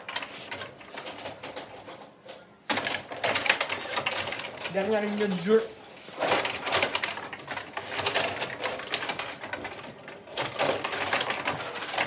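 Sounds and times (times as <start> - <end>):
rod hockey table clattering: 2.7 - 12.0.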